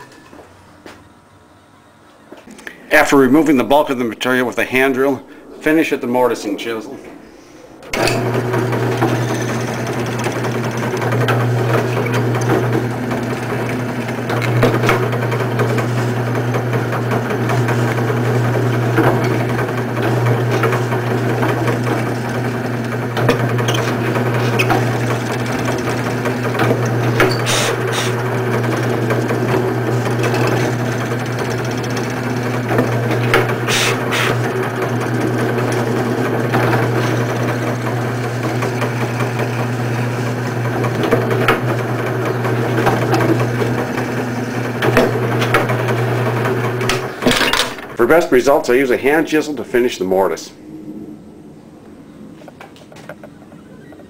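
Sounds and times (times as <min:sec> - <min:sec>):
drill press motor hum: 0:07.8 - 0:48.1
chisel scraping wood: 0:22.9 - 0:34.5.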